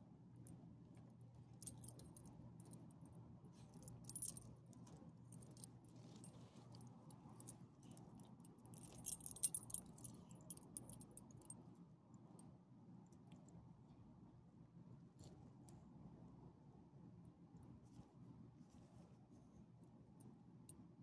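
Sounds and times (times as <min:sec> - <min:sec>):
dog collar tags jingling: 0:08.8 - 0:11.1.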